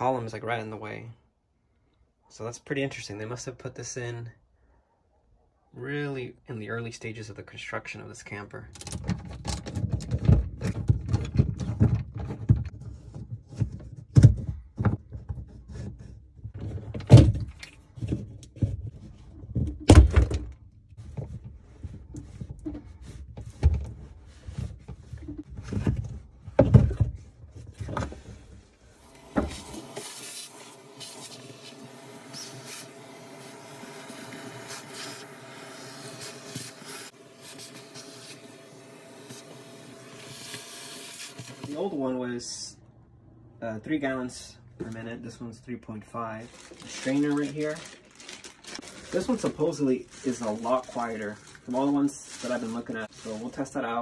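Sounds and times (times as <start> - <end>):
tools and hoses knocking and rattling: 8.7 - 28.3
shop vacuum running: 29.0 - 41.8.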